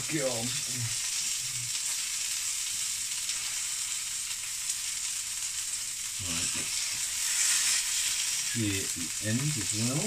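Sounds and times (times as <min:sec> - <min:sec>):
meat sizzling in frying pan: 0:00.0 - 0:10.0.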